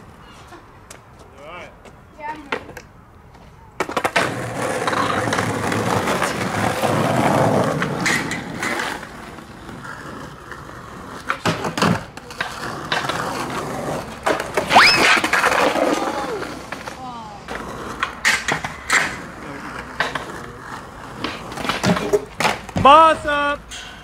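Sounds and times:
skateboard wheels rolling on pavement: 0.0 - 24.0
skateboard clacking on ground: 0.8 - 24.0
short rising squeal: 14.7 - 15.3.

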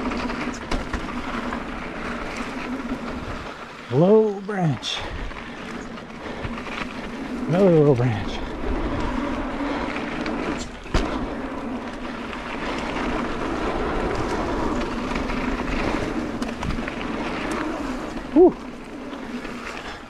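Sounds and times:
bike tyres rolling over dirt: 0.0 - 20.0.

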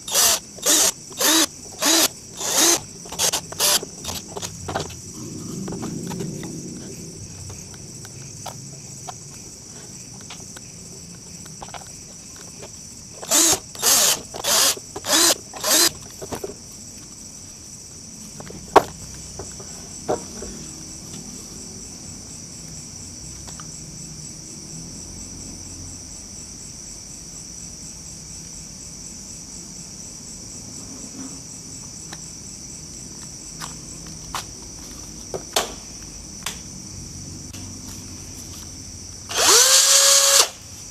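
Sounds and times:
insects chirring: 0.0 - 40.9.

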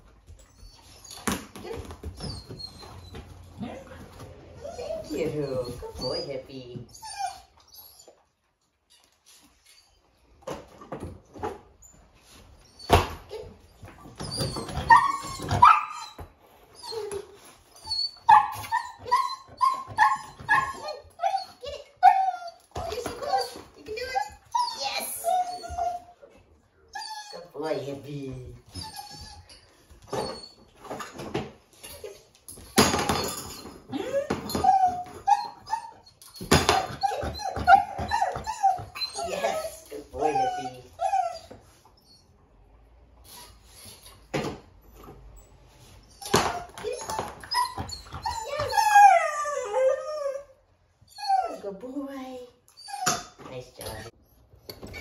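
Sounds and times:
dog yipping and whining: 0.3 - 3.6, 4.6 - 8.4, 11.4 - 26.3, 26.9 - 27.6, 28.6 - 31.2, 31.8 - 42.4, 46.0 - 51.8, 52.6 - 55.0.

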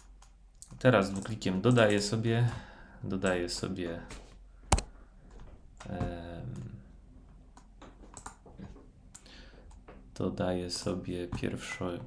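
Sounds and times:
computer mouse clicks: 4.7 - 5.0, 7.5 - 9.8.

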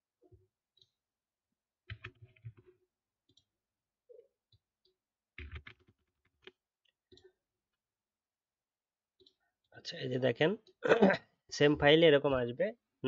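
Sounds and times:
faint keyboard typing: 1.8 - 3.5, 5.4 - 7.4.

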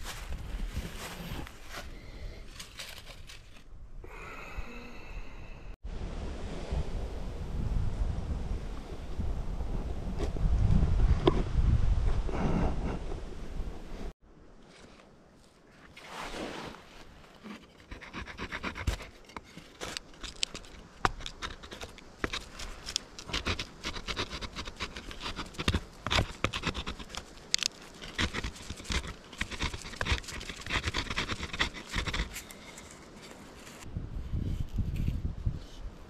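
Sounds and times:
hand scraping plant stalk: 2.4 - 3.7, 14.7 - 35.8.

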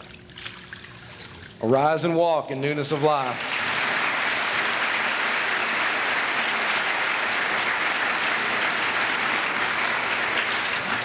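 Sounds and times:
congregation applauding: 2.7 - 11.0.

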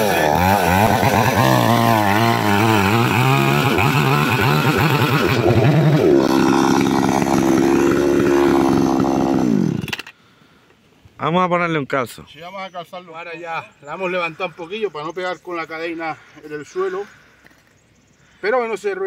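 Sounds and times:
chainsaw cutting wood: 0.0 - 10.1.

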